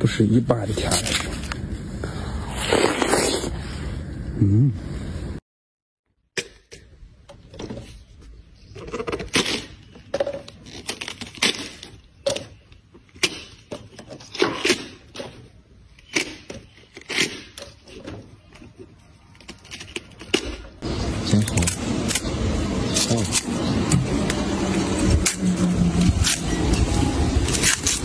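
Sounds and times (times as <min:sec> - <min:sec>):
watermelon cracking and tearing: 0:00.7 - 0:03.6, 0:09.0 - 0:15.2, 0:15.9 - 0:23.6, 0:25.2 - 0:28.0.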